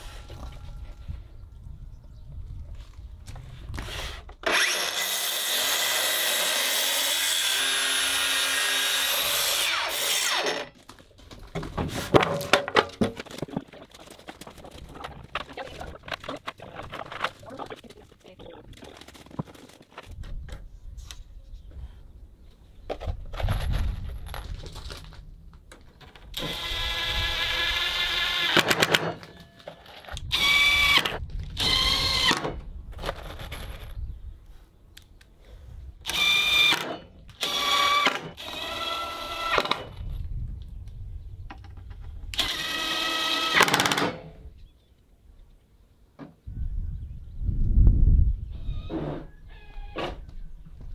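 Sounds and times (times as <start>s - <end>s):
knocks and handling clatter: 10.8s - 20.6s, 22.8s - 26.4s
cordless drill whining: 26.4s - 28.6s, 36.1s - 39.8s.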